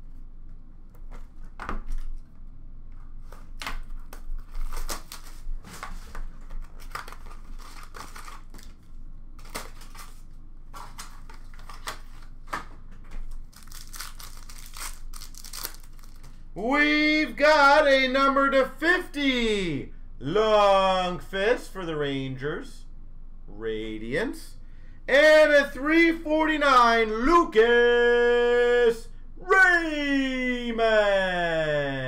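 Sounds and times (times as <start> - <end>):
rustling of packs: 3.3 - 16.5
card pack wrapper tearing: 3.9 - 8.8, 9.4 - 12.4, 13.2 - 16.4.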